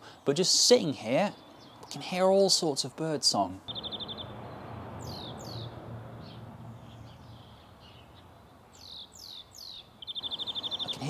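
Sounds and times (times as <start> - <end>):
bird trilling and whistling: 3.7 - 5.8
low background rumble: 3.7 - 9.3.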